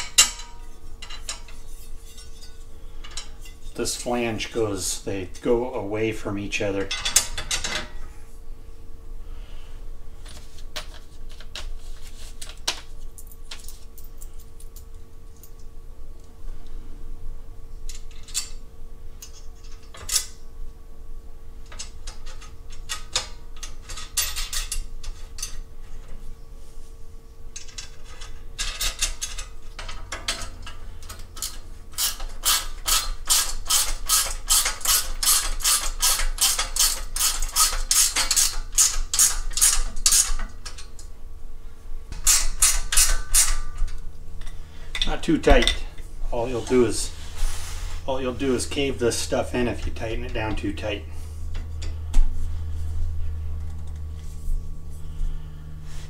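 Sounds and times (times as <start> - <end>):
hand ratchet clicking: 31.4 - 40.8.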